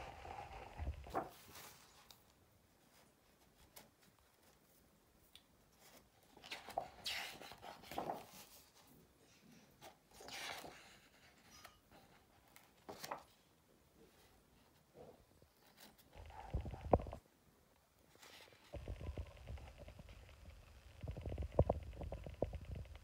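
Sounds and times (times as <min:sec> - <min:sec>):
book pages turning: 0:00.1 - 0:02.3, 0:05.8 - 0:08.9, 0:09.8 - 0:13.4, 0:18.1 - 0:23.0.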